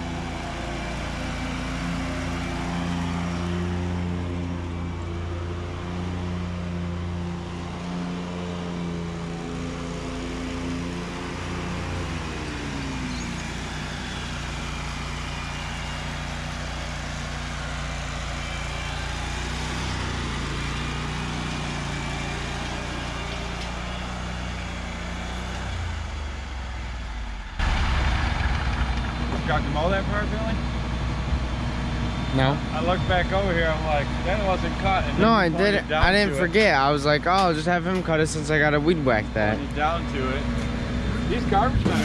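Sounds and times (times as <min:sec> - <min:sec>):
lawn mower engine running: 0:00.0 - 0:28.2.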